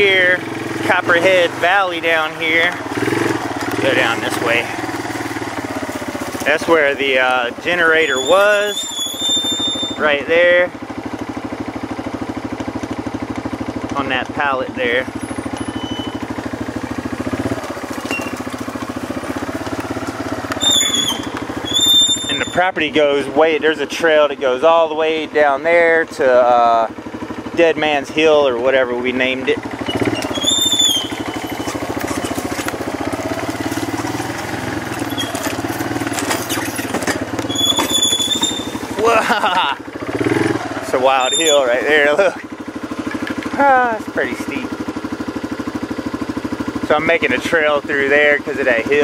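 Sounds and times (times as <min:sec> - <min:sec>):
off-road vehicle engine putter: 0:00.0 - 0:49.0
high squeal: 0:07.9 - 0:10.2, 0:15.4 - 0:16.3, 0:20.6 - 0:22.8, 0:29.9 - 0:32.3, 0:35.0 - 0:35.5, 0:36.3 - 0:39.1, 0:41.0 - 0:41.9.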